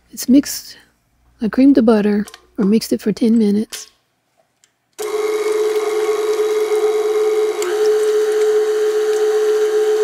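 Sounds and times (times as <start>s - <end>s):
stand mixer motor hum: 5.0s - 10.0s
whisk beating butter: 5.0s - 10.0s.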